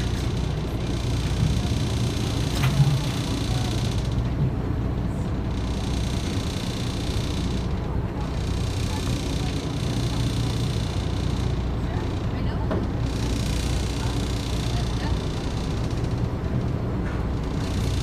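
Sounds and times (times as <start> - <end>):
water noise: 0.0 - 13.2
boat engine rumble: 0.0 - 18.0.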